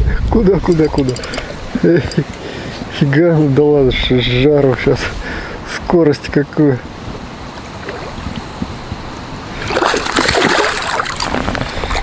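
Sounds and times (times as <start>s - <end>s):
fish thrashing and splashing: 9.6s - 12.0s.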